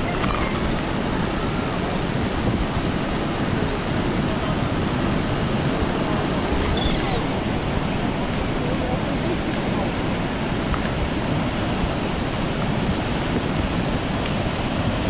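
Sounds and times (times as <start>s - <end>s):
rushing waterfall: 0.0s - 15.0s
wind buffeting microphone: 0.0s - 15.0s.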